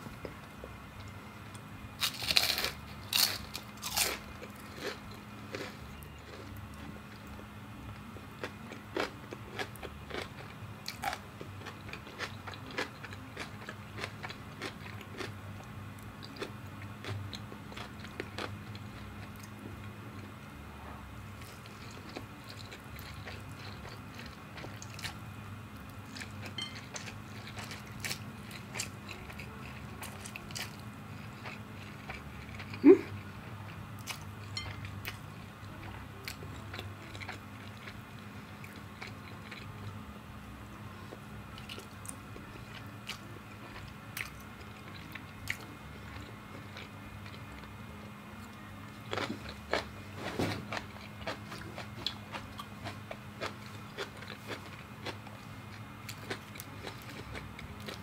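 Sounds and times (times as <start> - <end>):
crunching bites of fried food: 2.0 - 6.5.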